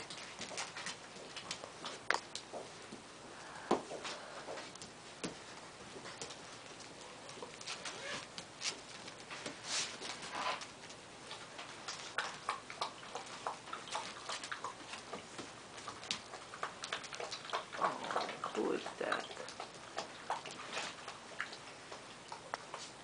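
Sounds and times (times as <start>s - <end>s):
puppies crunching kibble: 0.0s - 23.0s.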